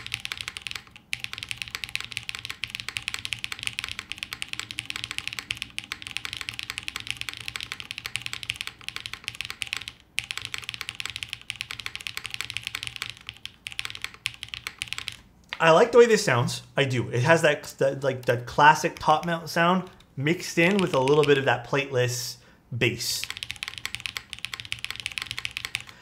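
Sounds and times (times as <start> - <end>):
fast mechanical keyboard typing: 0.0 - 15.6, 18.8 - 20.0, 20.6 - 21.5, 23.2 - 26.0.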